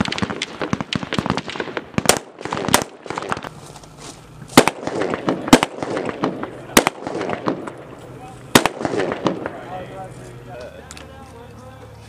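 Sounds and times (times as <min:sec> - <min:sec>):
rifle gunshots: 0:00.0 - 0:03.5, 0:04.5 - 0:10.0.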